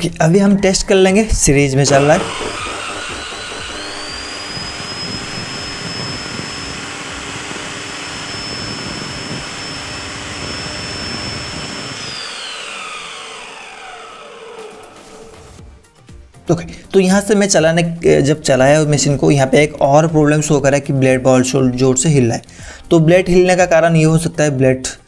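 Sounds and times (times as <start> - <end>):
cut-off saw motor whining: 1.2 - 15.8.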